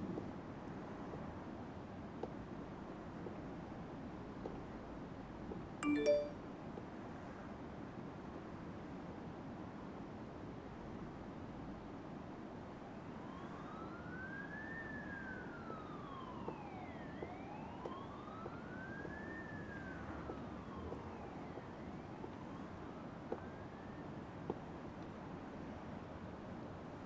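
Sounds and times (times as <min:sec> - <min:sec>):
ambulance siren wailing: 0:13.2 - 0:24.0.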